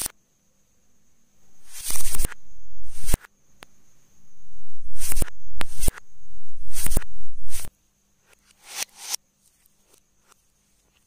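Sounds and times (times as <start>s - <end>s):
faint high whine: 0.0s - 11.0s
electric crackle: 1.6s - 3.2s, 4.8s - 7.7s
electric racket zapping snaps: 1.6s - 3.7s, 4.9s - 6.0s, 6.6s - 7.7s, 8.5s - 9.2s.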